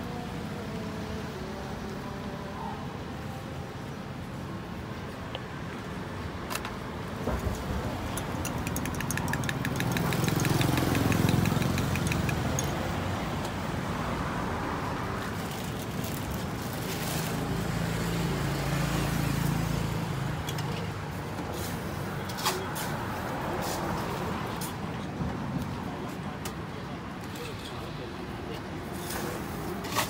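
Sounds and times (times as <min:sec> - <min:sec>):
vehicle engines rumbling past: 0:07.0 - 0:30.0
rapid light ticks: 0:08.1 - 0:12.7
sharp clicks: 0:08.1 - 0:12.8.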